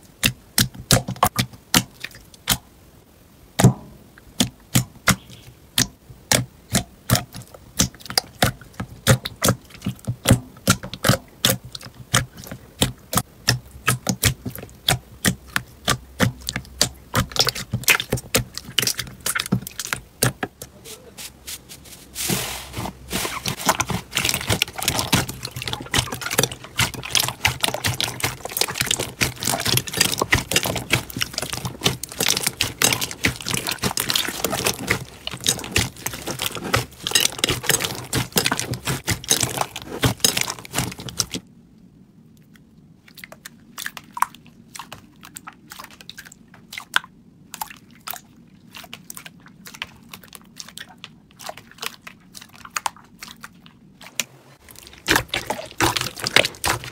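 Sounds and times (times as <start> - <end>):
slime crackling and clicking: 23.5 - 41.4.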